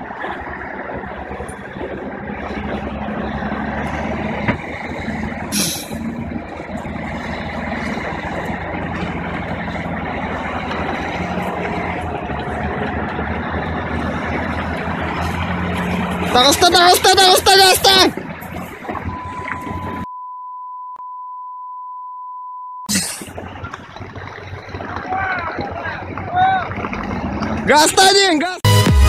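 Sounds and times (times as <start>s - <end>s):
diesel truck engine running: 0.0s - 20.1s, 22.9s - 29.0s
air brake hiss: 5.5s - 6.0s.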